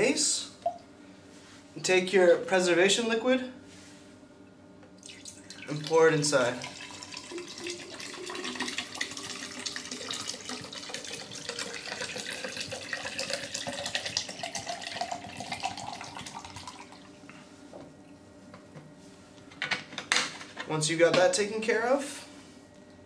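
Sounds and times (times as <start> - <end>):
liquid pouring and gurgling: 5.0 - 17.2.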